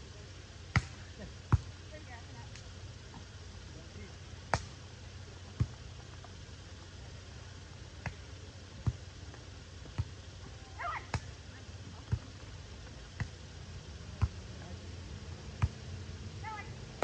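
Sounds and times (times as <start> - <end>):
volleyball being struck: 0.7 - 1.8, 4.5 - 4.8, 8.0 - 9.0, 10.8 - 11.4, 13.2 - 13.4, 14.2 - 14.4, 15.5 - 15.9.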